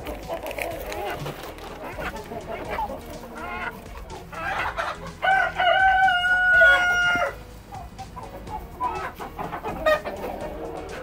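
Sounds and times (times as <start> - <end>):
chickens clucking and squawking: 0.0 - 11.0
rooster crowing: 5.0 - 7.4.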